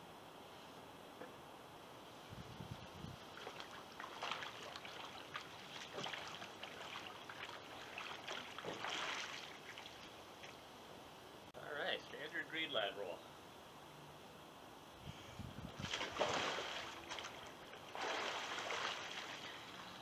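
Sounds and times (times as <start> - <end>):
water splashing around a kayak: 3.2 - 10.6, 15.7 - 20.0.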